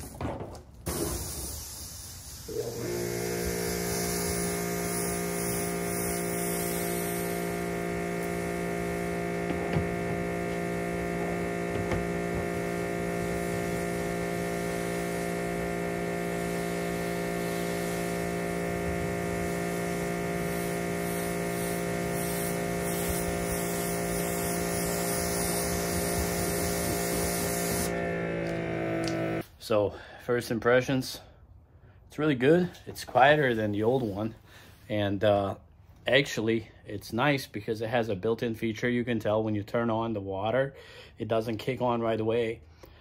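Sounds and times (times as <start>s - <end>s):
pressure washer humming: 0.8s - 29.4s
water spray hissing: 0.9s - 29.4s.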